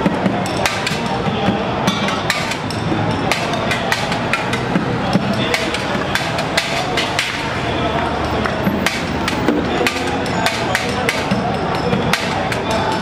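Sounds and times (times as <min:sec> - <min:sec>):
steady background noise: 0:00.0 - 0:13.0
sticks tapping plastic buckets: 0:02.0 - 0:11.4.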